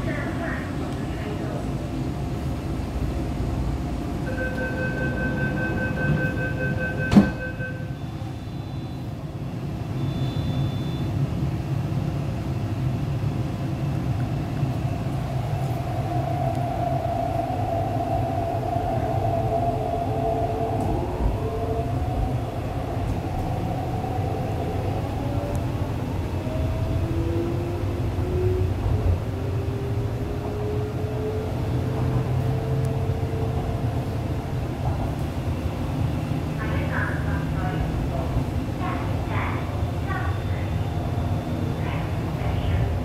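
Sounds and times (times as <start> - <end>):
door warning beeps: 4.3 - 9.1, 10.0 - 11.1
train doors knocking shut: 6.9 - 7.6.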